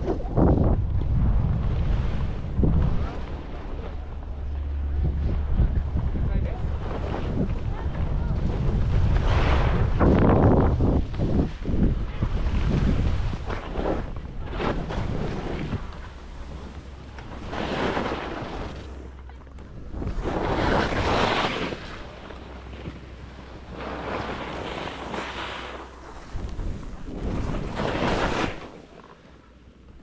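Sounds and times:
wind rumble on microphone: 0:00.0 - 0:30.0
skis swishing through snow: 0:08.6 - 0:18.9, 0:20.0 - 0:22.3, 0:23.7 - 0:28.9.

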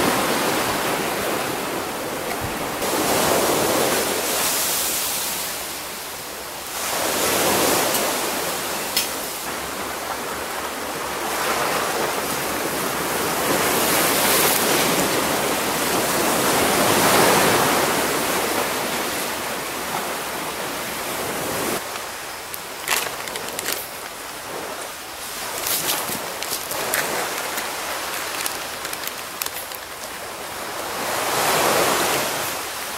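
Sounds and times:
waves washing up a beach: 0:00.0 - 0:32.9
campfire crackling: 0:21.8 - 0:30.7.

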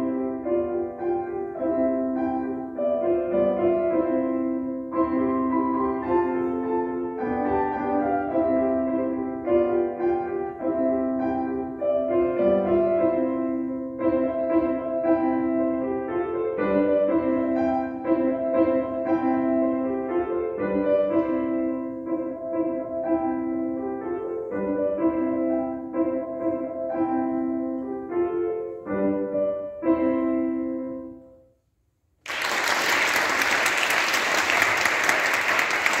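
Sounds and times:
grand piano playing: 0:00.0 - 0:31.5
applause: 0:32.2 - 0:36.0.

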